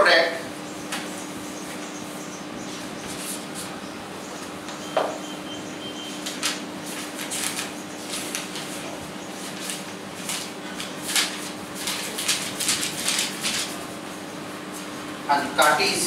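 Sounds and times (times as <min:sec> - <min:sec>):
steady low hum: 0:00.0 - 0:16.0
paper pages rustling: 0:06.2 - 0:14.1.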